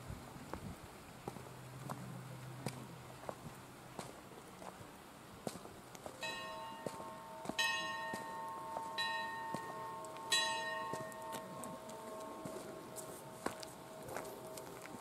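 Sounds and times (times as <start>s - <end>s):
footsteps on paved path: 0.1s - 15.0s
bells ringing: 6.2s - 15.0s.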